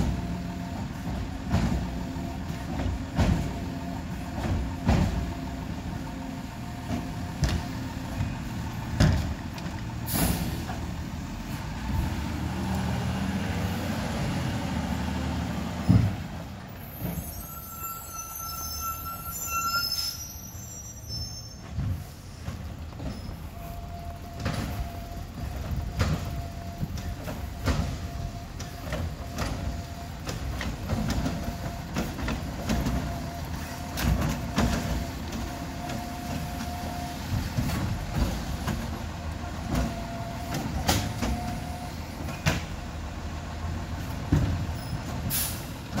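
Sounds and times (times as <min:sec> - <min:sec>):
clanks and rattles of truck body: 0:00.0 - 0:12.1, 0:15.8 - 0:17.4, 0:21.5 - 0:43.0, 0:43.9 - 0:46.0
diesel engine running: 0:00.0 - 0:17.1, 0:21.7 - 0:46.0
reversing beep: 0:17.0 - 0:21.7.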